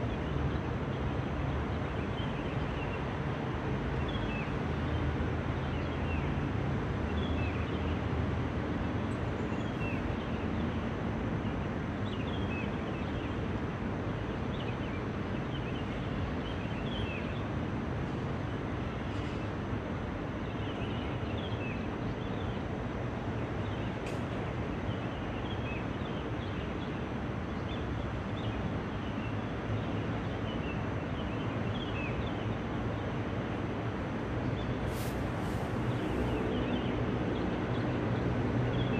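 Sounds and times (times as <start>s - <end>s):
distant traffic rumble: 16.0s - 38.9s.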